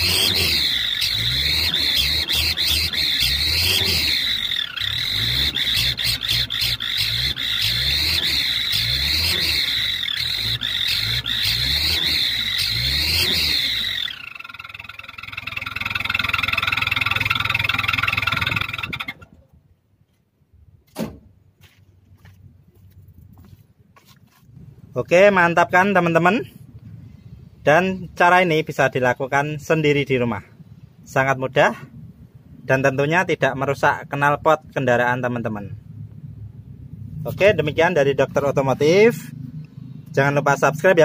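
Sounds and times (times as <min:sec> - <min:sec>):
engine revving: 0:00.0 - 0:19.3
high whistle whine: 0:00.0 - 0:19.3.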